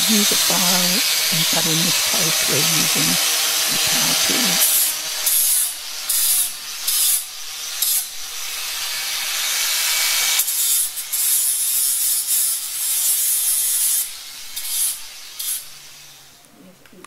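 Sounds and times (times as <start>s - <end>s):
angle grinder grinding horn: 0.0s - 6.2s.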